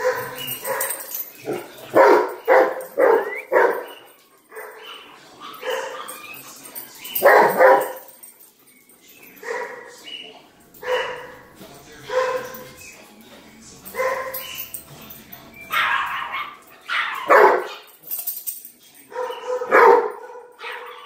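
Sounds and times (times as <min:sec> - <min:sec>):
dog barking: 0:00.0 - 0:06.2, 0:07.1 - 0:08.1, 0:09.4 - 0:10.0, 0:10.8 - 0:11.5, 0:12.1 - 0:12.7, 0:13.9 - 0:14.6, 0:15.7 - 0:17.9, 0:19.1 - 0:21.0.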